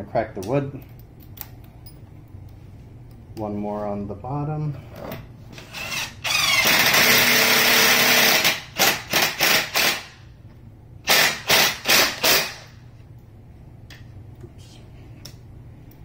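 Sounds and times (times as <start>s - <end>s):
impact driver driving screw into wood: 5.6s - 10.1s, 11.1s - 12.7s.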